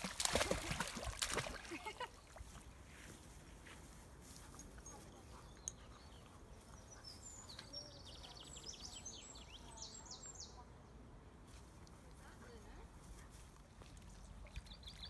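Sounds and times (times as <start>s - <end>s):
quiet outdoor background noise: 0.0s - 15.0s
small songbird singing: 5.0s - 10.7s, 14.5s - 15.0s.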